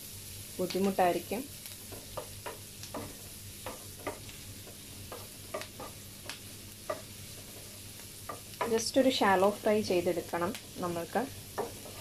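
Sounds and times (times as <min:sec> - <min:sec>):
onion sizzling in butter: 0:00.0 - 0:12.0
wooden spatula scraping frying pan: 0:01.8 - 0:06.1, 0:11.5 - 0:12.0.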